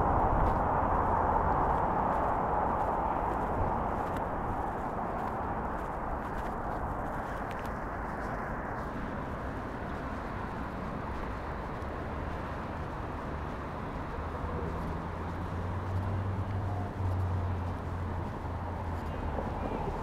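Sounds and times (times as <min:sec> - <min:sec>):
road traffic hiss: 0:00.0 - 0:20.0
vehicle engine drone passing: 0:00.0 - 0:20.0.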